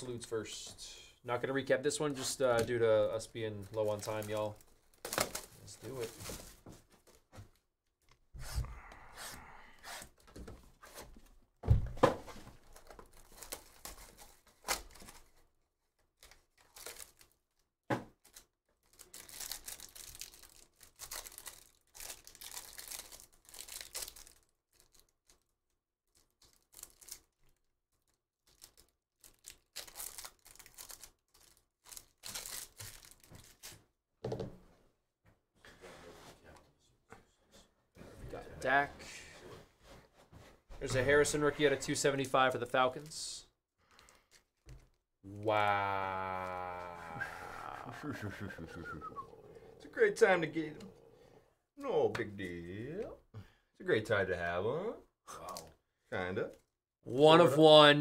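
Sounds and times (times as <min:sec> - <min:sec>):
wrappers tearing and crinkling: 0:03.6 - 0:07.2, 0:12.7 - 0:15.4, 0:16.2 - 0:17.6, 0:18.2 - 0:25.5, 0:26.1 - 0:33.8, 0:43.9 - 0:48.6.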